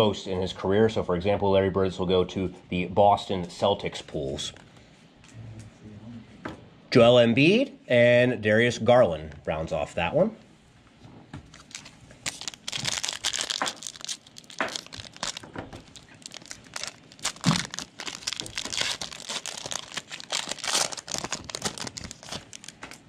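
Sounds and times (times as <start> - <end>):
wrapper tearing and crinkling: 11.5 - 23.0.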